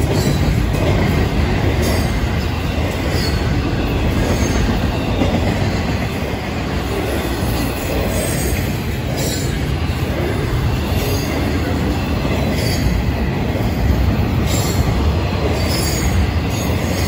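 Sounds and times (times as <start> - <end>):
steel wheels rumbling on rail: 0.0 - 17.0.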